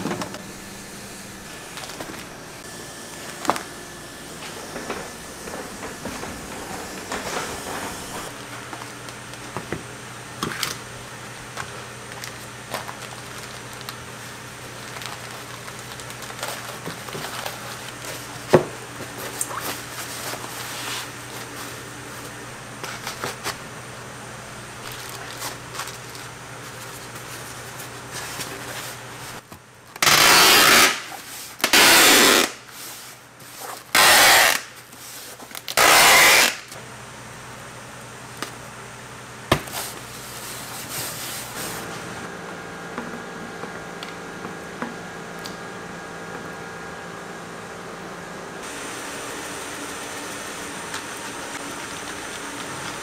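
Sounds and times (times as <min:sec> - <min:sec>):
steady low hum: 0:00.0 - 0:30.0
plastic bags rustling: 0:11.6 - 0:21.8, 0:24.8 - 0:29.4
packing tape ripping: 0:30.0 - 0:32.7, 0:33.6 - 0:34.8, 0:35.4 - 0:36.8.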